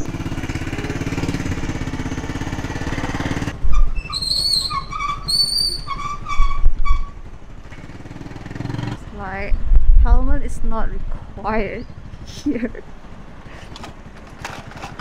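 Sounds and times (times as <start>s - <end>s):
motorbike engine running: 0.0s - 15.0s
short high whistled calls: 4.1s - 6.0s
wind thumps on microphone: 9.4s - 11.4s.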